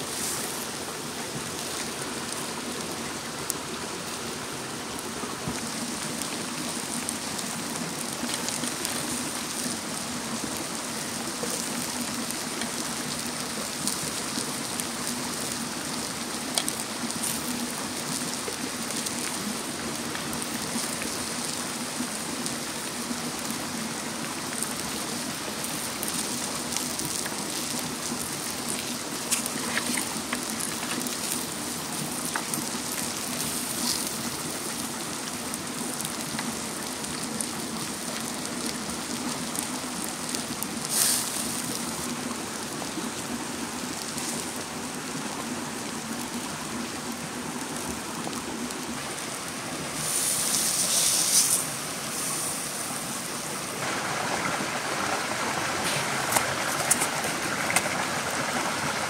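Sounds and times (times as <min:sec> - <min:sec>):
food sizzling on hot stone: 0:00.0 - 0:43.3, 0:44.0 - 0:45.3, 0:49.0 - 0:54.8, 0:55.8 - 0:57.9
crackles and pops: 0:05.4 - 0:21.5, 0:24.2 - 0:42.7, 0:55.7 - 0:58.2.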